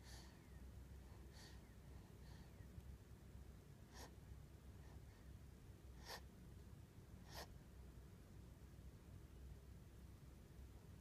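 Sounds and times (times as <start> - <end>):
baby breathing softly: 0.0 - 2.8, 3.7 - 6.4, 7.1 - 7.6
low room hum: 0.0 - 11.0.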